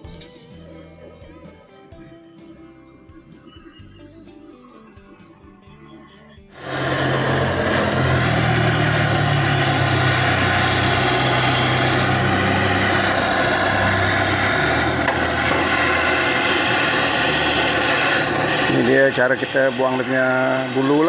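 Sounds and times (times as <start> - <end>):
gas torch flame: 6.6 - 21.0.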